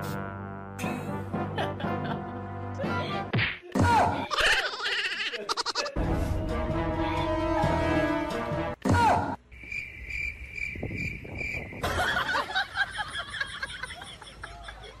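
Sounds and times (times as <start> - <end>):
crickets chirping: 9.5 - 13.5.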